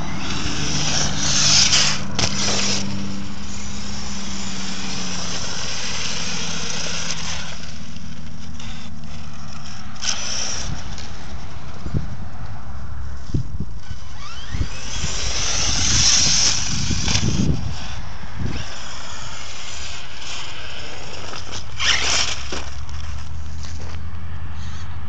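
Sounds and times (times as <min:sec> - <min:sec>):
tyres rushing on gravel: 0:00.0 - 0:11.8, 0:13.9 - 0:24.0
electric motor whine: 0:00.0 - 0:12.1, 0:12.8 - 0:23.9.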